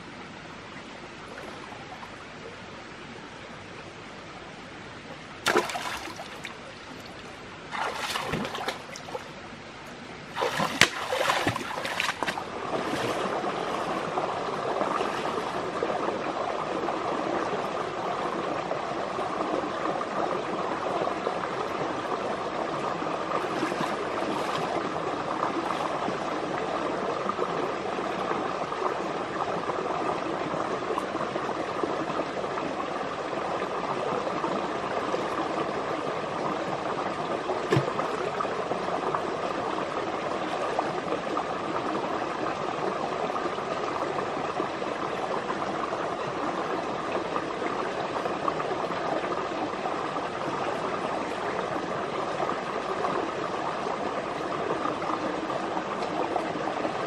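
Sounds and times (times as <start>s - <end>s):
water splashing: 5.4s - 9.4s, 10.2s - 15.7s, 23.4s - 26.2s, 37.7s - 38.2s
water running: 10.3s - 14.0s.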